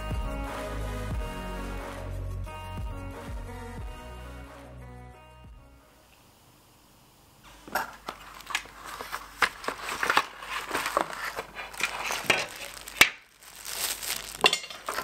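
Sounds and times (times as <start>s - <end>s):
plastic wrapping crinkling: 7.6s - 15.0s
cardboard packaging scraping: 7.7s - 15.0s.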